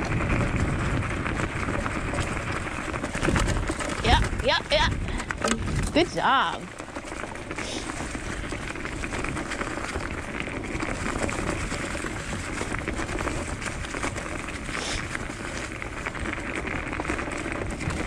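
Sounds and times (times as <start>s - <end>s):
scooter rolling over dry leaves: 0.0s - 18.0s.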